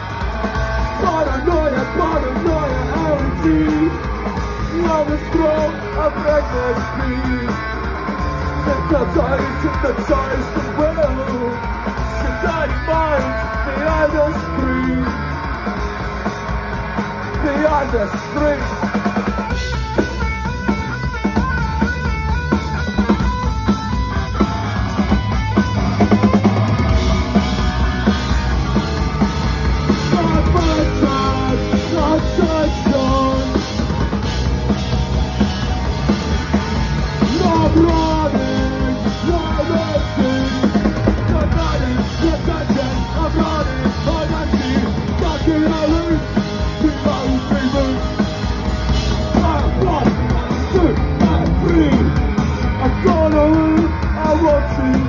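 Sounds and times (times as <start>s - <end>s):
distorted electric guitar: 0.0s - 55.0s
pounding drum kit: 0.0s - 55.0s
person singing: 29.9s - 33.8s, 37.2s - 48.2s.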